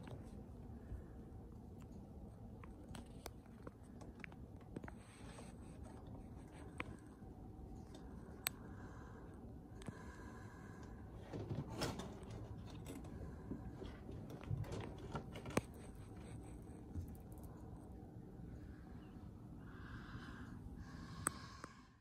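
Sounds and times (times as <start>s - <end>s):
kitten rustling and shuffling: 1.9s - 8.3s, 11.1s - 18.0s.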